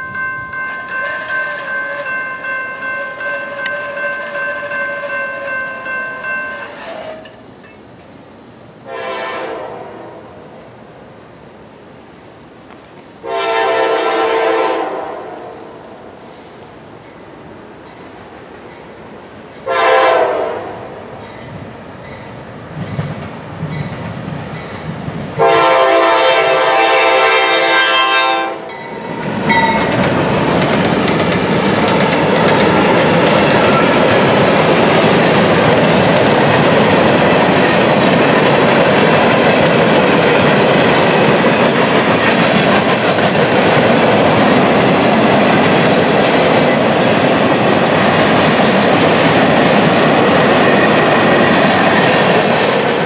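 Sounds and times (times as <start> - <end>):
train wheels rumbling on rail: 0.0 - 53.0
locomotive air horn blast: 8.9 - 10.3, 13.2 - 15.7, 19.6 - 20.9, 25.4 - 28.7.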